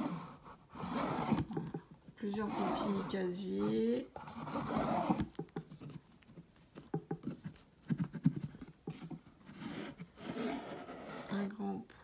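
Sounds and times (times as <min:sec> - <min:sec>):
drawers knocking and clicking: 0:06.8 - 0:09.4.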